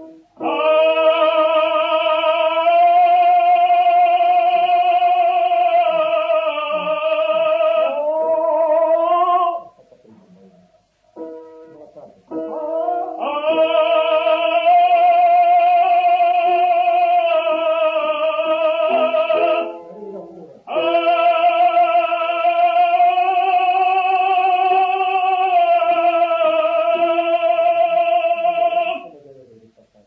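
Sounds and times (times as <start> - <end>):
male opera singer: 0.4 - 9.7, 12.6 - 19.8, 20.6 - 29.1
instrumental accompaniment: 8.1 - 17.8, 18.5 - 22.0.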